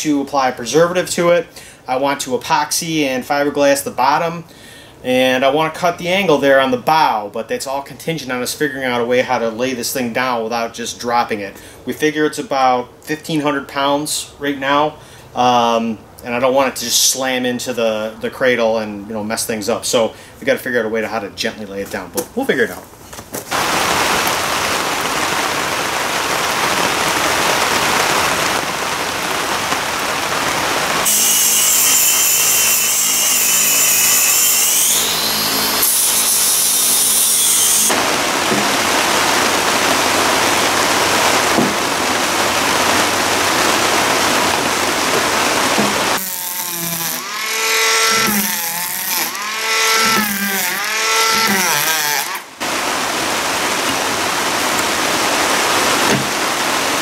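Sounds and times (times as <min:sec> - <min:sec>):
tool biting into wood: 0:45.8 - 0:52.5
power tool motor whine: 0:46.2 - 0:52.5.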